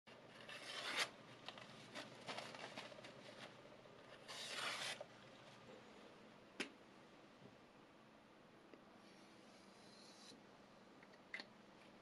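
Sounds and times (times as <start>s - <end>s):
knife slicing paper: 0.4s - 1.2s, 4.2s - 5.1s
faint paper rustles and ticks: 1.4s - 4.2s.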